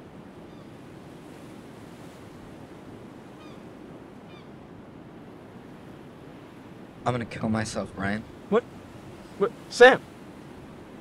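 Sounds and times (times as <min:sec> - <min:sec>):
wind rumbling: 0:00.0 - 0:11.0
faint bird calls: 0:00.4 - 0:00.8, 0:03.3 - 0:04.6.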